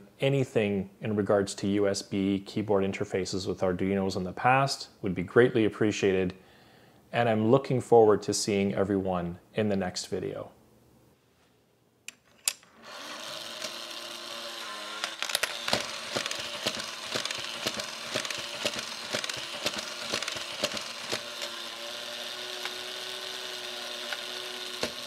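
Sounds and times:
toy motor whirring: 12.5s - 25.0s
ratcheting clicks of gears: 15.0s - 25.0s.

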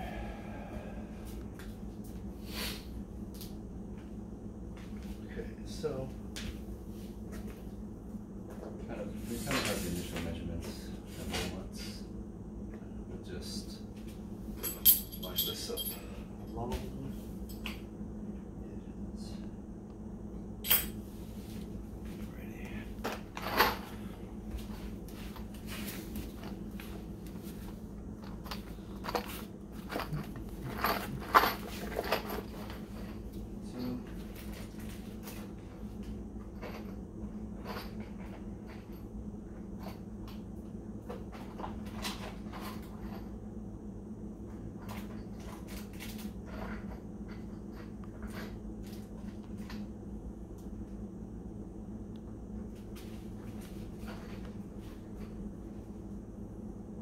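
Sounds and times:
steady low hum: 0.0s - 57.0s.

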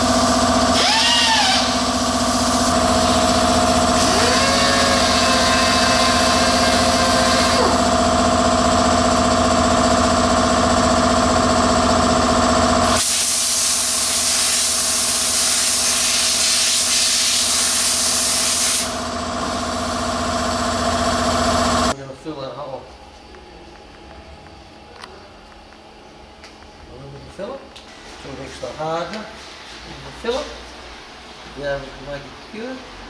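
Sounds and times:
power tool droning: 0.0s - 22.0s
compressed air hissing: 12.9s - 20.0s.

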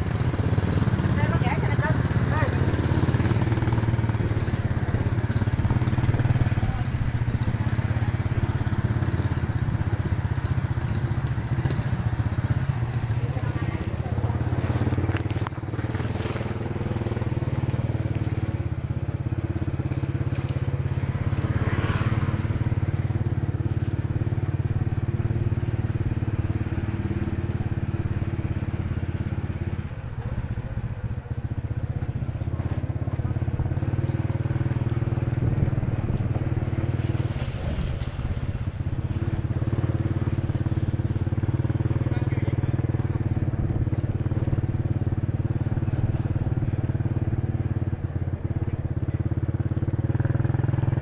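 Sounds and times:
small engine running: 0.0s - 51.0s.

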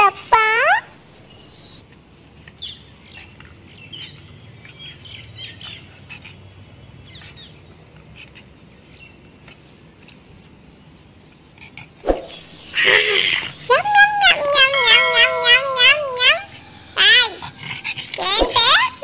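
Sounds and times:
small birds chirping: 0.3s - 19.0s.

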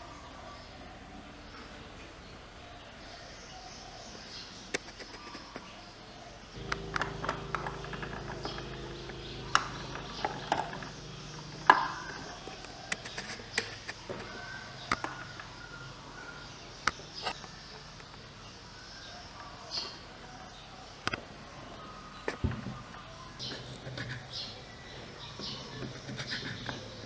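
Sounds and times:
low steady hum: 6.6s - 13.4s.

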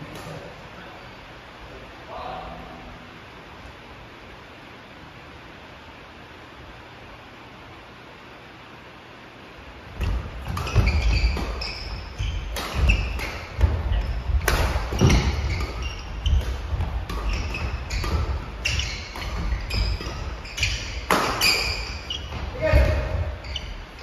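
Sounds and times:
feet thudding on wooden court: 9.9s - 24.0s
rackets hitting shuttlecock: 10.0s - 24.0s
shoes squeaking: 10.0s - 24.0s.

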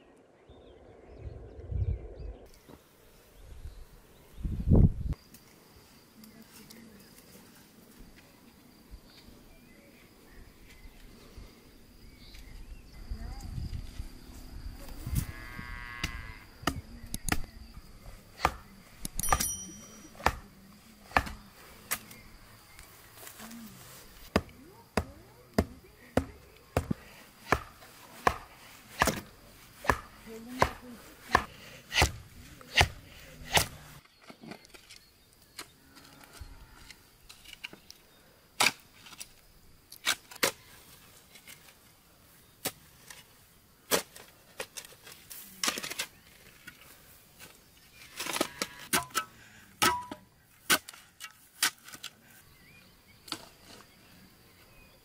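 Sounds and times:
blade chopping wooden branch: 18.4s - 19.5s, 24.3s - 33.8s, 49.8s - 51.0s.

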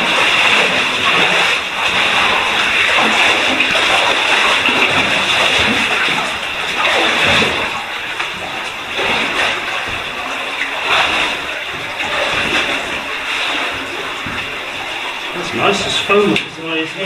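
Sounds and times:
footsteps splashing through water: 0.0s - 17.0s
stream rushing: 0.0s - 17.0s.

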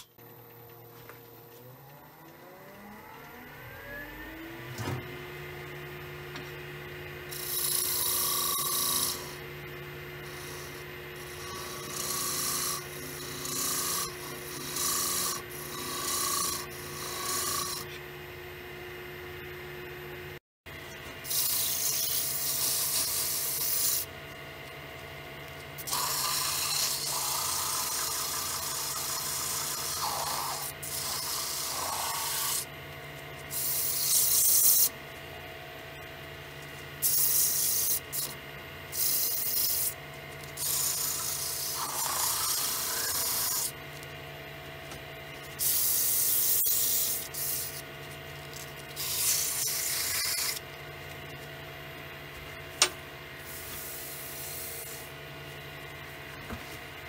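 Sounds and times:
wood lathe humming: 5.4s - 18.1s, 25.7s - 32.7s, 39.2s - 43.8s
sandpaper hissing on spinning wood: 33.5s - 34.9s, 37.0s - 38.3s, 38.9s - 40.0s, 40.6s - 43.8s, 45.5s - 47.9s, 48.9s - 50.6s, 53.4s - 55.1s.

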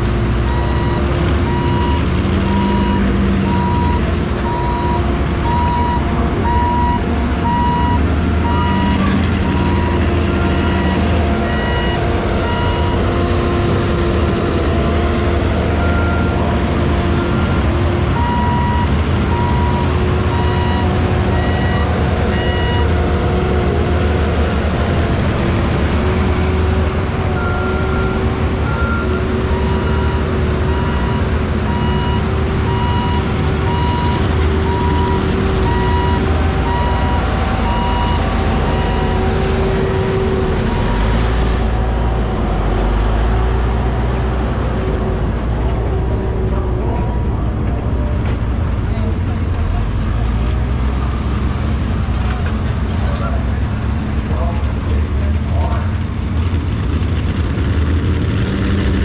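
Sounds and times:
engine drone: 0.0s - 59.0s
backup alarm beeping: 0.5s - 13.0s, 18.2s - 22.9s, 27.4s - 39.2s.

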